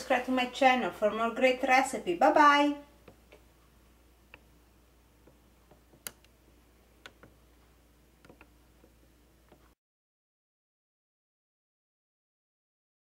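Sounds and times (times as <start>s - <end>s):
low steady hum: 0.0s - 9.8s.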